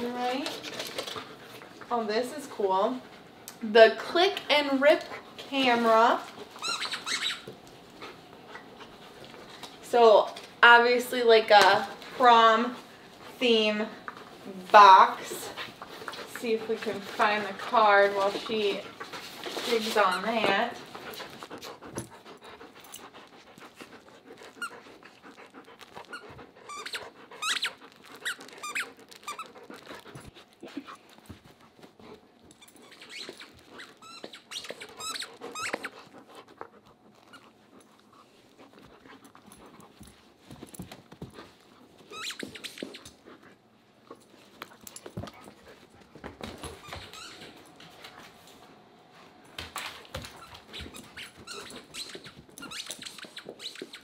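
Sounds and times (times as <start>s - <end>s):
dog chewing and tugging toy: 0.0s - 2.0s, 12.9s - 48.4s, 49.4s - 54.0s
squeaky toy squeaking: 6.6s - 7.5s, 26.1s - 29.5s, 32.6s - 35.9s, 42.1s - 43.0s, 50.8s - 54.0s
dog panting: 11.8s - 48.6s, 49.2s - 54.0s.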